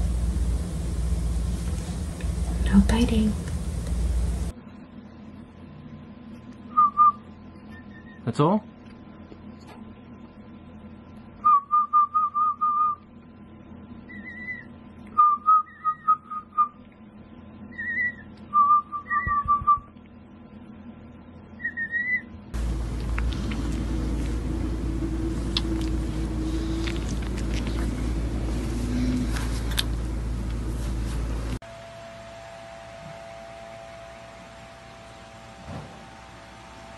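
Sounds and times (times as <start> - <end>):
chick whistling peeps: 6.7 - 8.2, 14.1 - 16.8, 17.7 - 19.9, 21.6 - 22.3.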